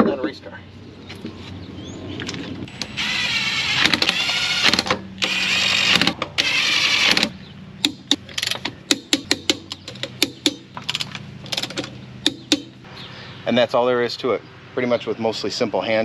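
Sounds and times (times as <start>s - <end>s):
power tool motor whining: 2.7s - 7.4s.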